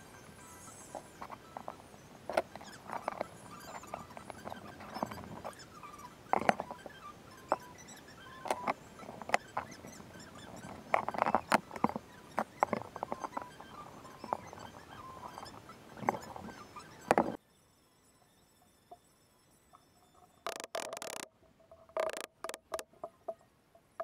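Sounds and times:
wooden parts knocking: 6.3s - 6.8s, 8.4s - 9.8s, 10.4s - 14.5s, 17.1s - 17.4s, 20.5s - 23.4s.

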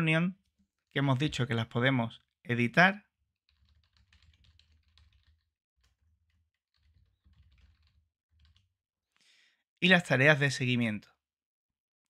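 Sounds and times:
typing on a keyboard: 3.5s - 8.8s.

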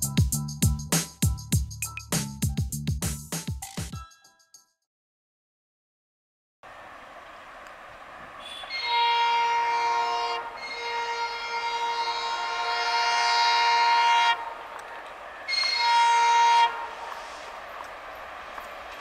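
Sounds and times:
train passing: 6.6s - 19.0s
locomotive horn blasts: 8.3s - 17.5s.

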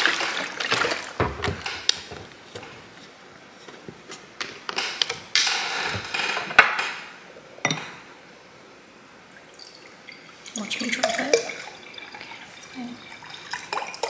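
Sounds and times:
juice pouring into a glass: 9.4s - 14.0s.

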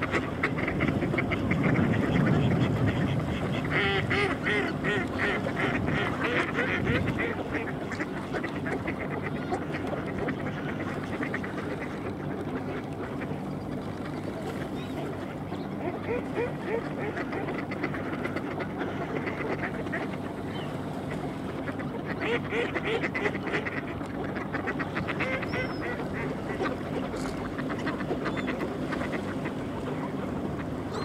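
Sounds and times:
ducks quacking: 0.0s - 31.0s.

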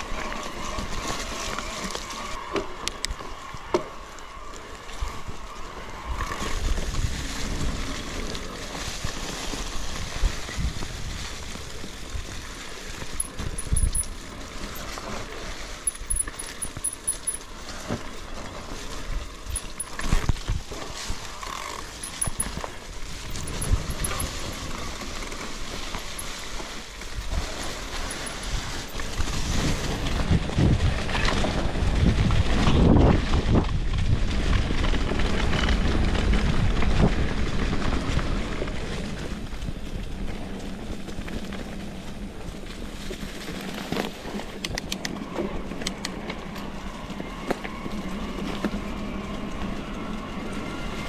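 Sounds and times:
wind buffeting microphone: 27.0s - 41.2s.

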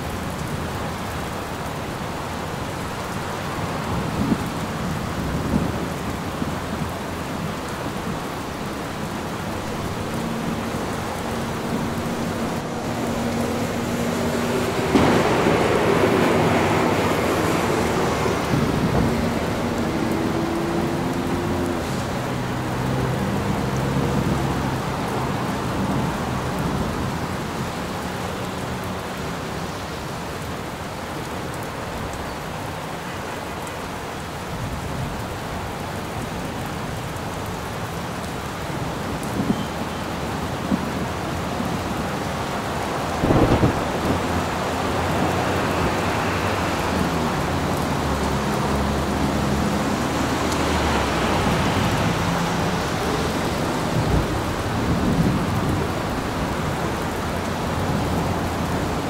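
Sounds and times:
heavy rain: 0.0s - 59.0s
low rolling thunder rumbles: 9.5s - 22.1s, 38.8s - 59.0s
thunder crack: 14.3s - 19.8s, 43.1s - 44.6s.

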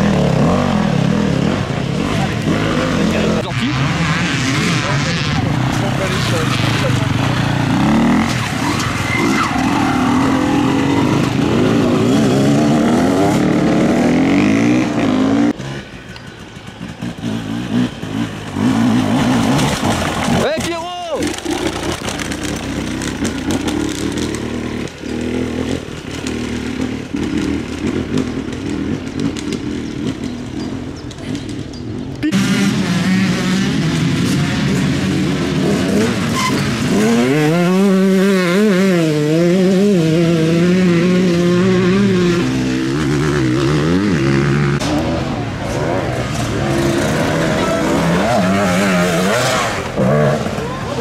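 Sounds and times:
motorcycle engine revving: 0.0s - 51.0s
motorcycle engines running: 0.0s - 51.0s.

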